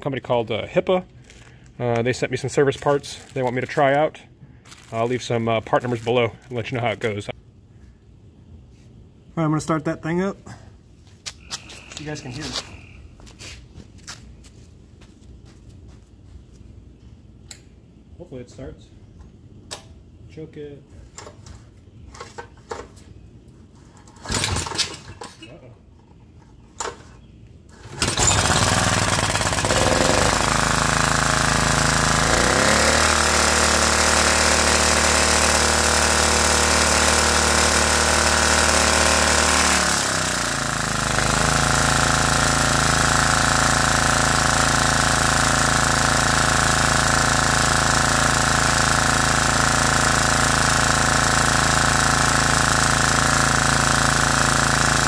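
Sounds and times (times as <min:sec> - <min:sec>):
loud generator engine running: 0:27.8 - 0:55.0.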